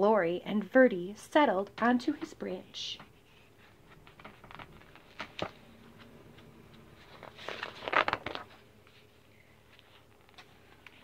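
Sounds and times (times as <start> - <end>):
paper rustling: 3.2 - 11.0.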